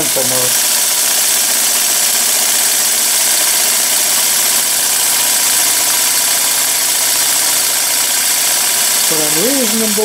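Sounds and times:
model steam engine hissing: 0.0s - 10.0s.

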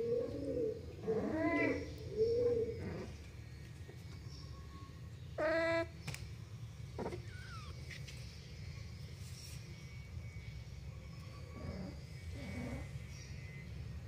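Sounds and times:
low steady hum: 0.0s - 14.0s
kitten mewing: 7.0s - 7.8s.

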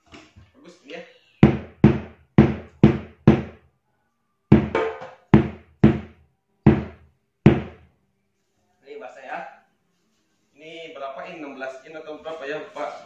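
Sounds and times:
bass drum deep thuds: 1.4s - 3.6s, 4.5s - 7.8s.

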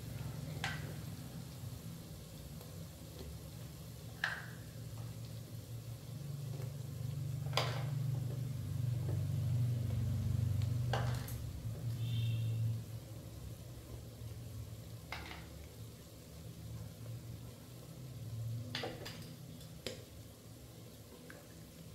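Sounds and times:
utensil tapping on pan: 4.2s - 4.6s.

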